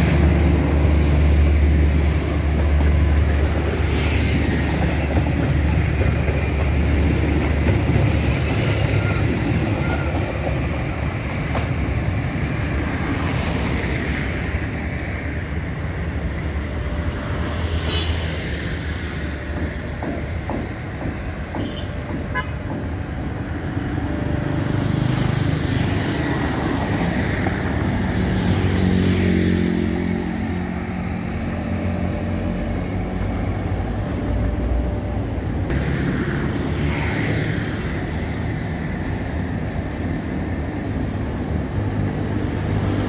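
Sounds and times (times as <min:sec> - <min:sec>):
motor vehicles passing by: 0:24.4 - 0:33.0.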